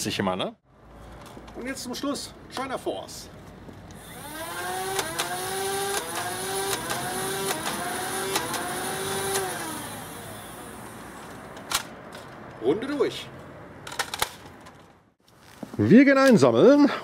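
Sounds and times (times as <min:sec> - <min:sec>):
flywheel blaster whining: 0:04.0 - 0:11.0.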